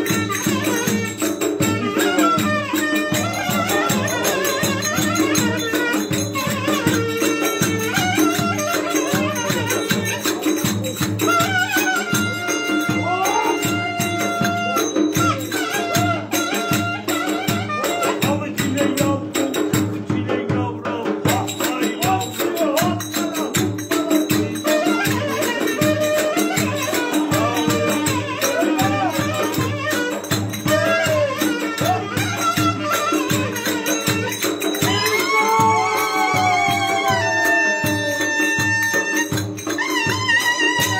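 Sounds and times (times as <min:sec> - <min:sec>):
clarinet sliding melody: 0:00.0 - 0:18.2, 0:24.6 - 0:40.9
fast clicking percussion: 0:00.0 - 0:40.9
bass drum beat: 0:16.0 - 0:39.1.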